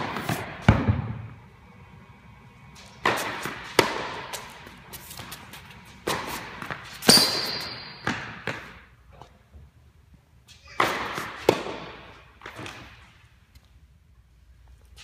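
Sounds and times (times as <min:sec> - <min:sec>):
tennis balls hit and bouncing: 0:00.0 - 0:01.4, 0:02.6 - 0:09.4, 0:10.4 - 0:13.3.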